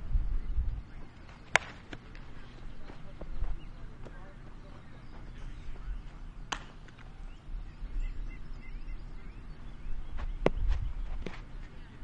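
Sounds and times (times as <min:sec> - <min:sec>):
wind rumbling on microphone: 0:00.0 - 0:01.2, 0:07.4 - 0:12.0
sharp smack of baseball: 0:01.5 - 0:02.0, 0:06.5 - 0:07.0
faint bird chirps: 0:02.2 - 0:12.0.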